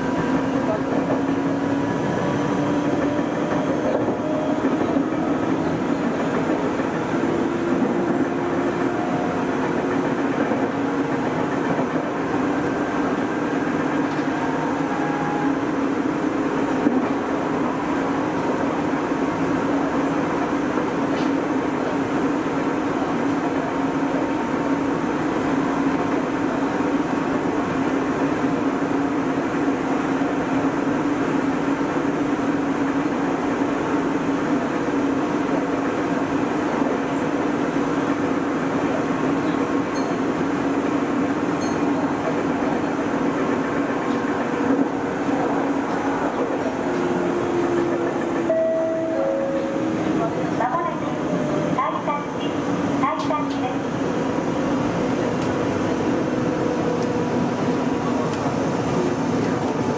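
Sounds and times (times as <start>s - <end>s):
train hum: 0.0s - 59.9s
train wheels rumbling on rail: 0.0s - 59.9s
click: 58.3s - 58.5s.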